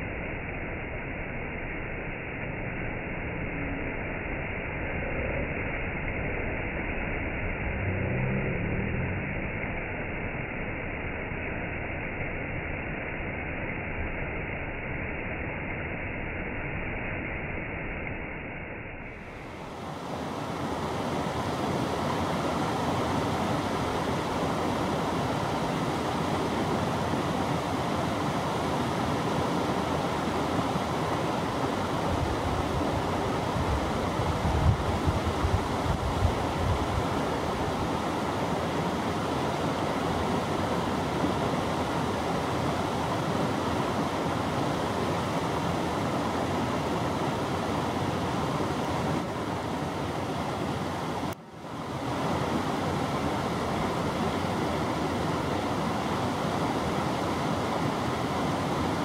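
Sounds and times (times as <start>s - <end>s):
water rushing over rapids: 19.1s - 59.0s.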